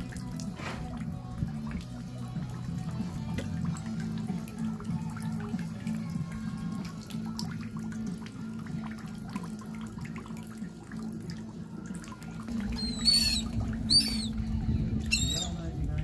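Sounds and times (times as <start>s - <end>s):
water lapping and dripping: 0.0s - 16.0s
bird squawking: 12.6s - 14.4s, 15.0s - 15.7s.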